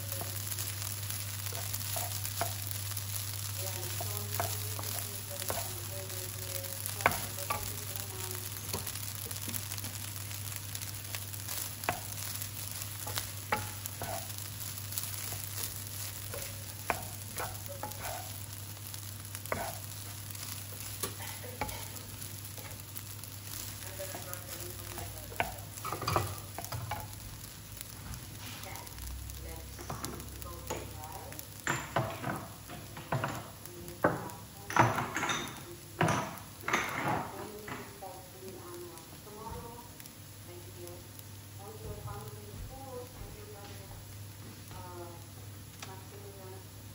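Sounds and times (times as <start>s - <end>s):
spatula stirring and scraping: 0.0s - 28.9s
rice sizzling in a pan: 0.0s - 46.9s.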